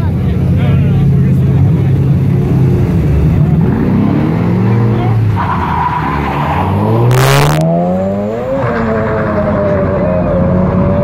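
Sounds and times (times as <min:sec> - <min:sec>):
car engines revving hard: 0:00.0 - 0:11.0.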